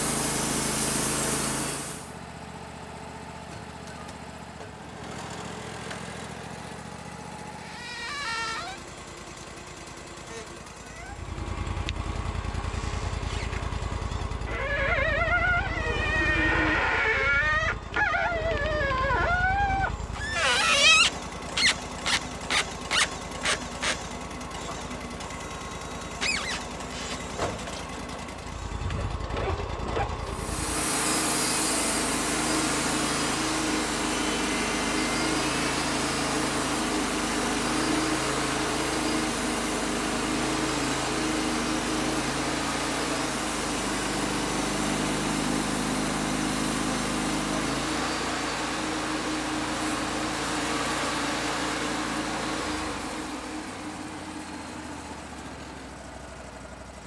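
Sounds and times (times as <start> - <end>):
engine running: 0.0 - 57.0
saw blade cutting log: 14.7 - 25.0, 26.2 - 27.8, 30.4 - 50.8.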